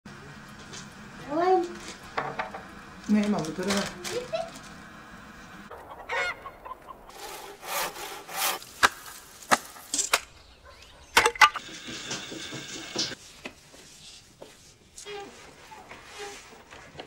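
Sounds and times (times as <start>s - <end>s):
axe chopping wood: 8.8s - 9.8s.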